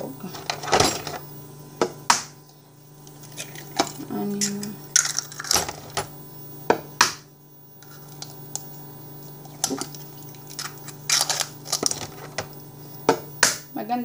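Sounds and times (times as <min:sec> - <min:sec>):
steady low hum: 0:00.0 - 0:14.0
eggshells cracking: 0:03.0 - 0:06.0, 0:07.8 - 0:12.6.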